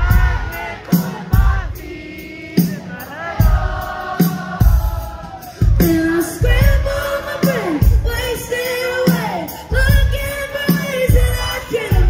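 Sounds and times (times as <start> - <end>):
heavy kick drum beats: 0.0 - 12.0
live pop-rock band: 0.0 - 12.0
person singing: 4.6 - 12.0.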